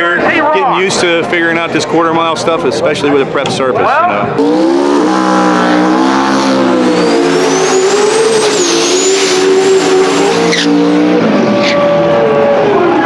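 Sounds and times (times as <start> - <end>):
race car engines revving: 4.3 - 13.0.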